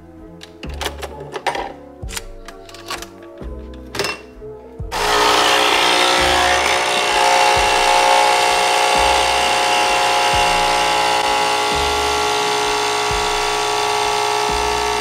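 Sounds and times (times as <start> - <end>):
espresso machine pump buzzing: 5.0 - 15.0.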